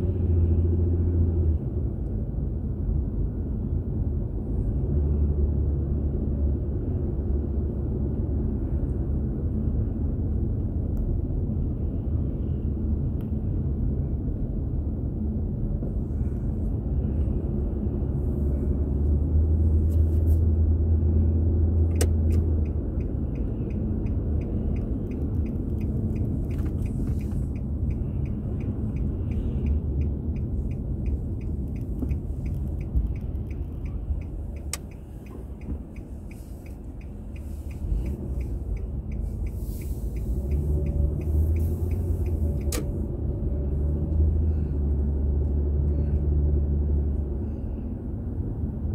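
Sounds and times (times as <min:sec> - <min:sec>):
car engine and tyres rumbling: 0:00.0 - 0:48.9
turn-signal ticking: 0:21.9 - 0:43.0.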